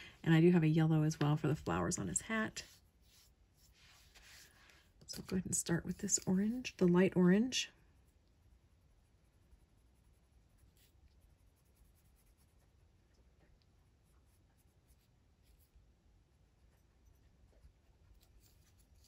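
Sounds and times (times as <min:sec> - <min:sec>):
pencil scratching on paper: 0:09.2 - 0:12.6.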